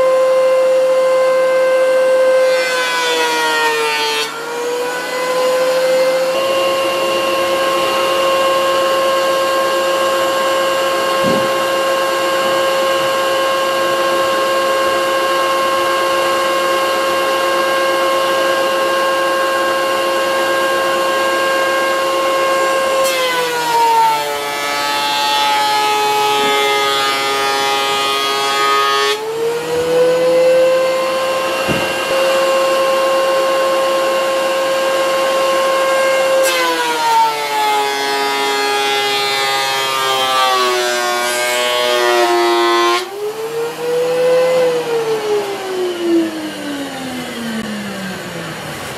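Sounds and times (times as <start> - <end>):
planer cutting board: 0.0 - 45.4
thickness planer whining: 0.0 - 48.9.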